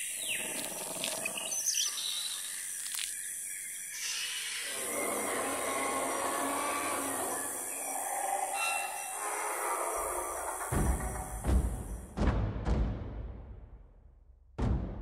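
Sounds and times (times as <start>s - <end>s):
bird calls and chirps: 0.0s - 10.7s
high insect-like hiss: 0.0s - 12.0s.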